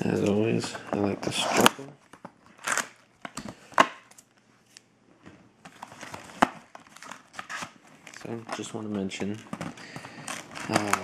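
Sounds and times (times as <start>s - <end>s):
cardboard rustle: 5.6s - 11.0s.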